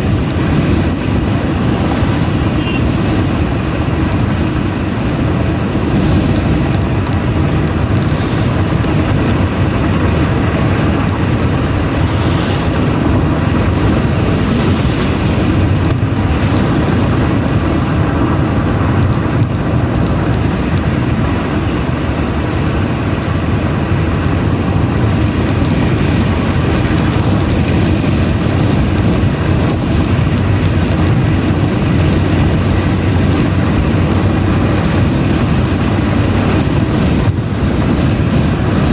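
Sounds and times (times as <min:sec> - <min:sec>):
car engine and tyre noise: 0:00.0 - 0:38.9
wind noise: 0:00.0 - 0:38.9.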